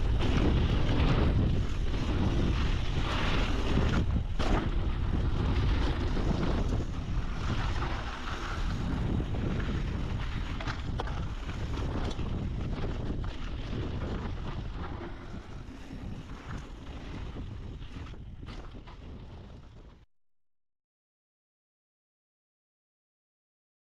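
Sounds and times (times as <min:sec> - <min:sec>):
wind buffeting microphone: 0:00.0 - 0:20.0
bike knocks and rattles: 0:00.2 - 0:06.8.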